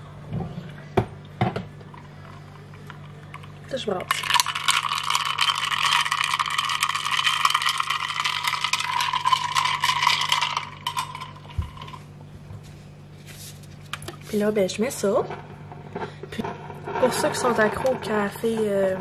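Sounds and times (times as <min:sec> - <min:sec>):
ice cubes clinking in glass jar: 0:04.1 - 0:12.0.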